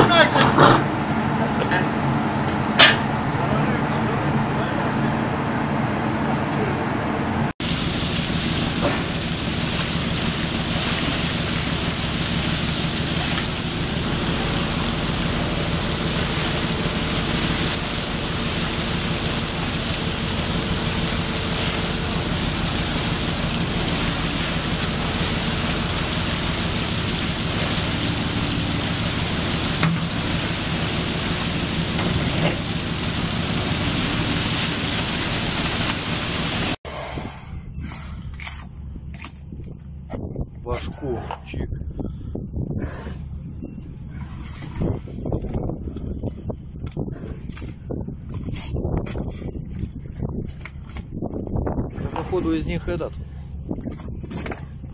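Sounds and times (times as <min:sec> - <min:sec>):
low hum: 0:01.1 - 0:52.4
water pouring and splashing: 0:07.6 - 0:36.8.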